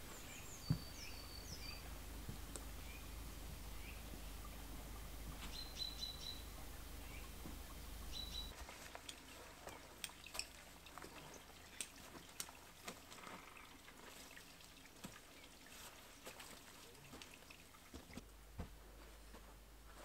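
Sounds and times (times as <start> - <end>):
bird chirp: 0.0 - 2.0, 2.7 - 8.6
faint ticks and crackles: 1.8 - 20.0.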